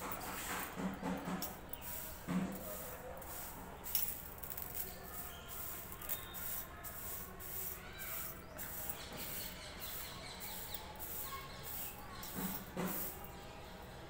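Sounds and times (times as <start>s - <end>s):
lentils scratching on steel plate: 4.1s - 13.1s.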